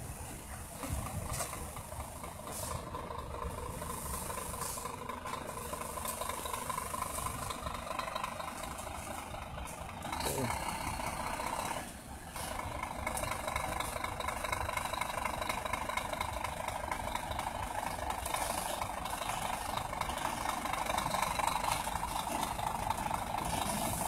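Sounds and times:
truck diesel engine running: 0:00.0 - 0:24.0.

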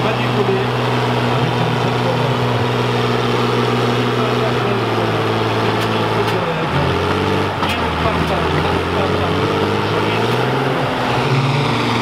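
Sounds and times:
tractor engine idling: 0:00.0 - 0:09.4.

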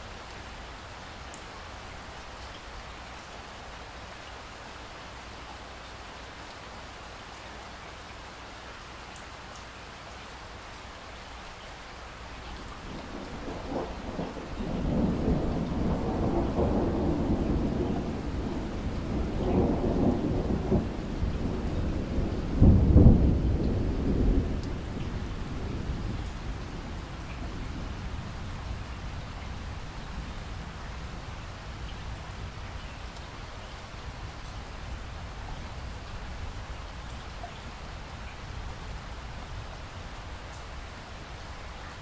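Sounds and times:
steady rain: 0:00.0 - 0:42.0
thunder rumbling: 0:12.8 - 0:31.3.

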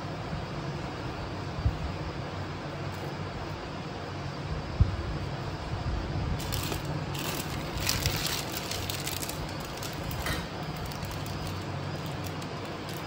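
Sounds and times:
plastic sheet crinkling: 0:06.4 - 0:13.0.

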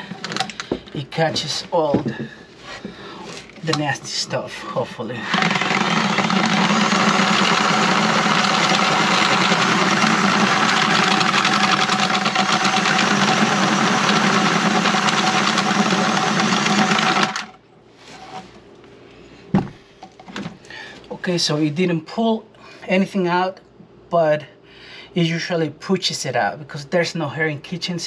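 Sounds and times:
cordless drill whirring: 0:05.3 - 0:17.5.

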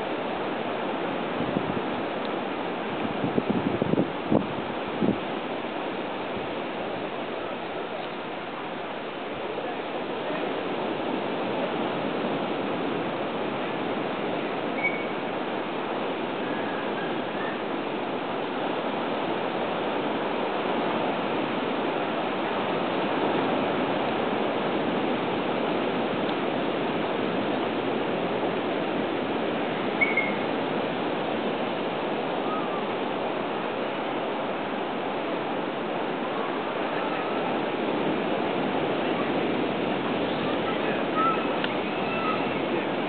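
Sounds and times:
water rushing: 0:00.0 - 0:43.0
short high chirp: 0:14.8 - 0:15.2, 0:30.0 - 0:30.5.

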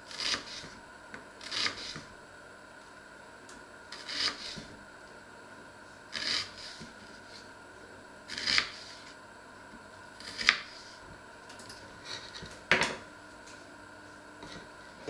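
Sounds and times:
knife slicing onion on board: 0:00.1 - 0:00.8, 0:01.4 - 0:02.1, 0:03.9 - 0:04.7, 0:06.1 - 0:07.4, 0:08.3 - 0:09.2, 0:10.2 - 0:11.0.

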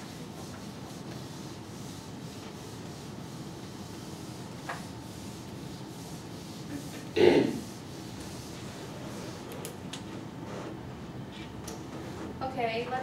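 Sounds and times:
eraser rubbing on whiteboard: 0:00.0 - 0:09.7.

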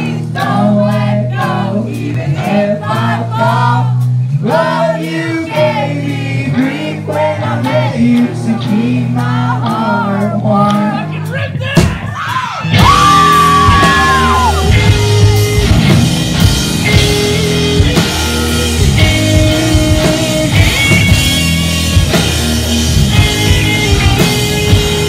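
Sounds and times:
drum kit: 0:00.0 - 0:25.0
electric guitars: 0:12.5 - 0:25.0.

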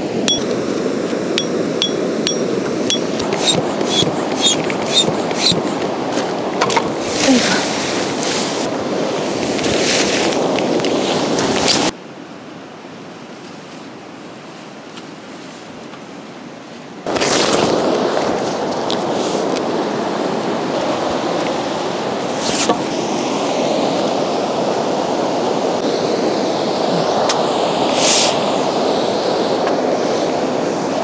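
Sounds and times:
tent pegs hammered in: 0:01.4 - 0:05.7
tent fabric rustling: 0:07.0 - 0:08.7, 0:09.3 - 0:11.9.

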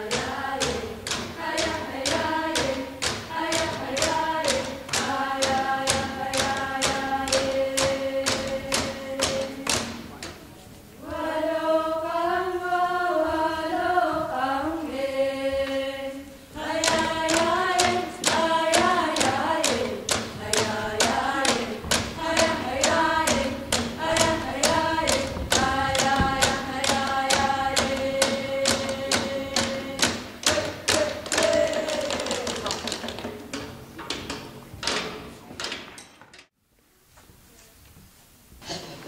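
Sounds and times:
group of young voices singing: 0:00.0 - 0:10.1, 0:11.0 - 0:33.7
frame drums beating: 0:00.0 - 0:10.5, 0:16.6 - 0:35.7.

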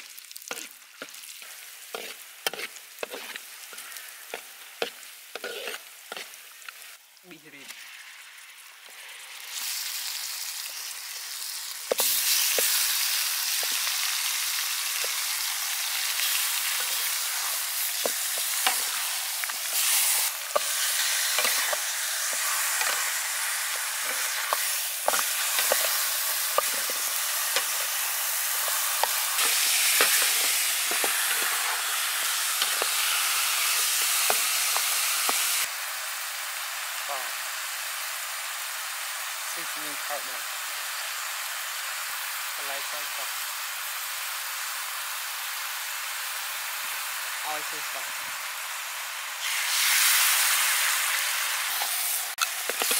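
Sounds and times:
meat sizzling in hot oil: 0:00.0 - 0:52.9
metal spatula scraping wok: 0:00.5 - 0:06.6, 0:14.9 - 0:35.6.

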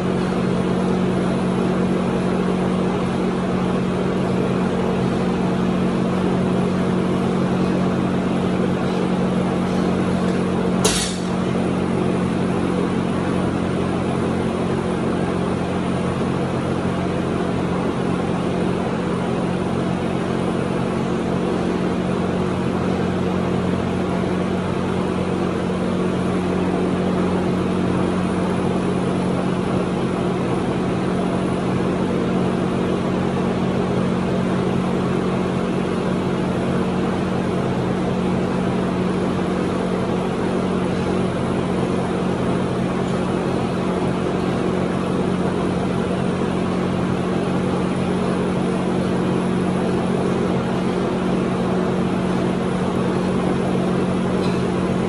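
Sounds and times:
machine hum: 0:00.0 - 0:55.0
barbell dropped on rubber mats: 0:10.8 - 0:11.4.

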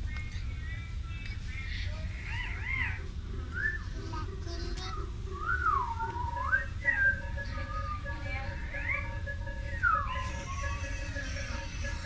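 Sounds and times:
person whistling gliding notes: 0:04.9 - 0:08.1, 0:08.8 - 0:10.3.

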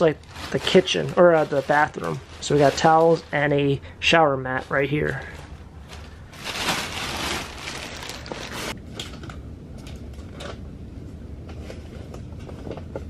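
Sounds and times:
plastic bag rustling: 0:00.0 - 0:03.6, 0:05.1 - 0:08.8.

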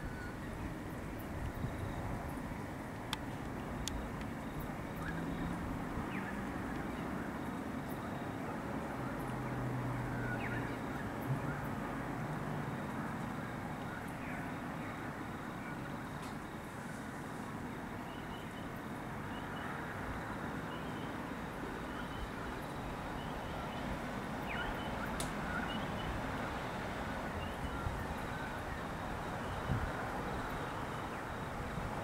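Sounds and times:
storm rumble and hiss: 0:21.4 - 0:32.0.

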